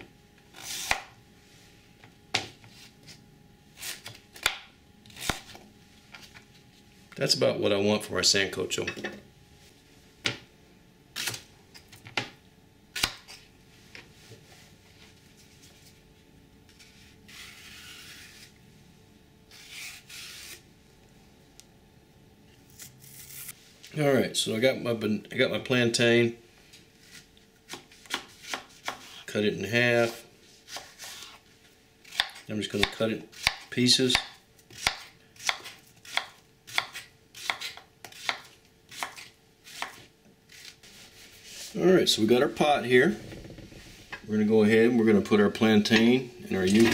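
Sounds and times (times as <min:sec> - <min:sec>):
knife scraping peel: 0:16.7 - 0:18.6, 0:19.5 - 0:20.6, 0:22.7 - 0:23.6, 0:30.0 - 0:31.4, 0:34.7 - 0:41.8
knife chopping on plastic board: 0:32.1 - 0:40.1.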